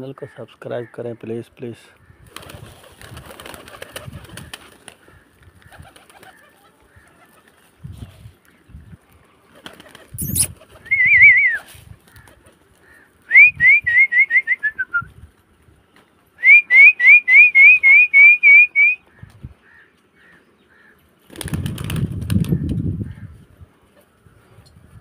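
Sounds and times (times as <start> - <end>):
pigeon wings flapping: 2.3 - 7.7, 9.5 - 12.9, 21.3 - 22.8
whistling in short rising notes: 10.2 - 11.7, 16.4 - 19.0.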